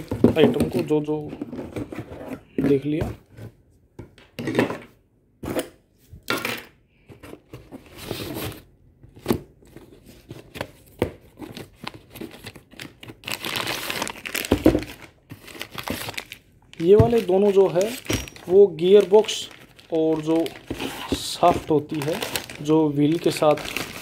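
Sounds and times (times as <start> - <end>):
cardboard rustling and knocking: 0.0 - 4.8, 16.8 - 18.6, 20.2 - 22.6
plastic wrap crinkling: 11.7 - 24.0.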